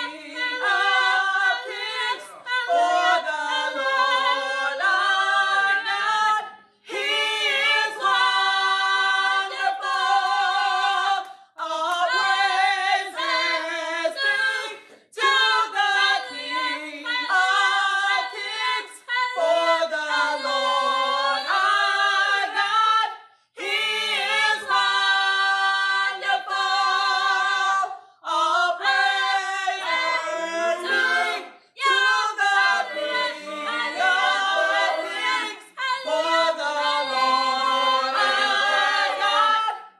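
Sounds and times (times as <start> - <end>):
group singing unaccompanied: 0.0 - 39.9.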